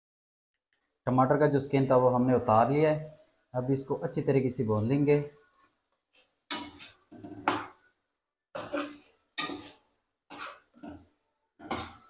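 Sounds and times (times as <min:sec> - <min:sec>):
metal ladle scraping a steel pan: 0:06.5 - 0:07.7, 0:08.6 - 0:12.0.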